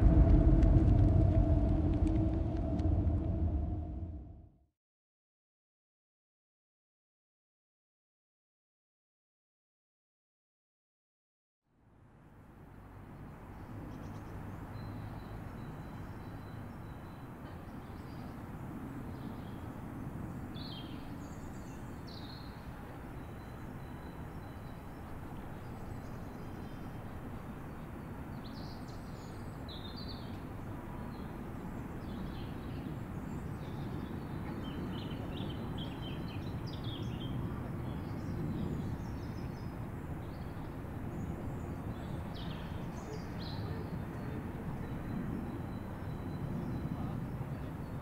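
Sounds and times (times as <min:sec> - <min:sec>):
steady low rumble: 0:00.0 - 0:04.6.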